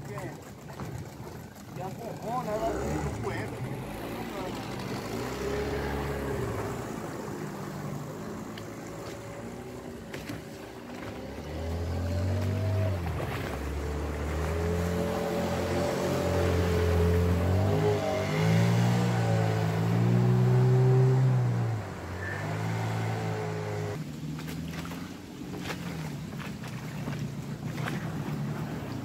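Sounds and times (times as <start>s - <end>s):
boat wake splashing: 0.0s - 29.0s
small outboard motor running: 0.0s - 29.0s.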